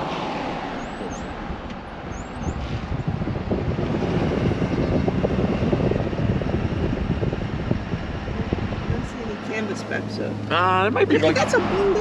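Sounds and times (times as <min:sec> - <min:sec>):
wind rumbling on microphone: 0:00.0 - 0:10.3
tyre noise on wet road: 0:00.0 - 0:12.0.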